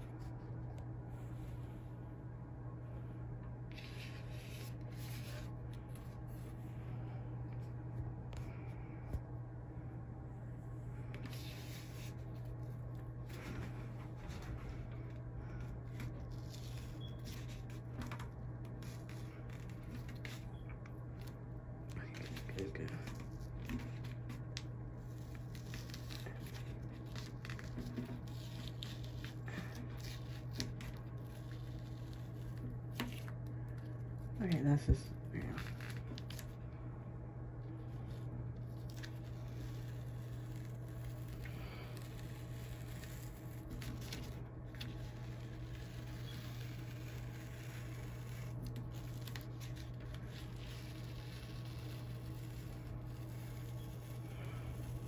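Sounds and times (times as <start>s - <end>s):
steady low hum: 0.0s - 55.0s
tape peeling with crackling tears: 11.0s - 34.4s, 35.4s - 36.7s, 37.6s - 55.0s.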